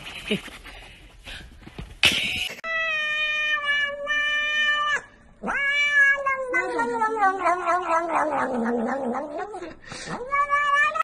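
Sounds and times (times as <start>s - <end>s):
cat meowing: 2.7s - 11.0s.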